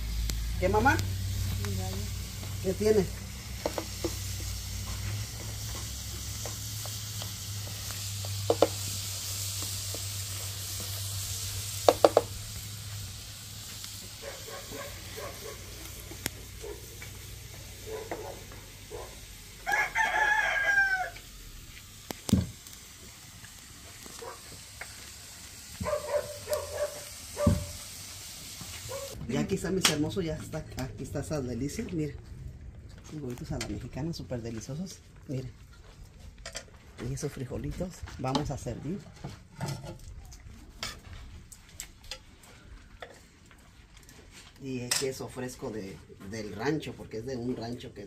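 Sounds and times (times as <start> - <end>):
food sizzling in frying pan: 0.0 - 29.9
rooster crowing: 19.6 - 21.4
thump: 27.4 - 27.7.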